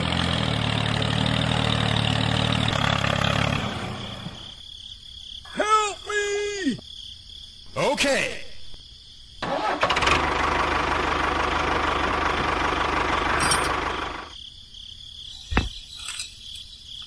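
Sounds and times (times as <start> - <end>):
tractor engine chugging: 0.0 - 4.6, 9.4 - 14.4.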